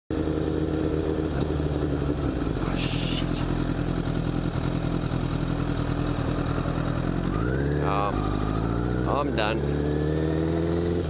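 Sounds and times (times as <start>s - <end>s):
motorcycle engine running: 0.1s - 11.0s.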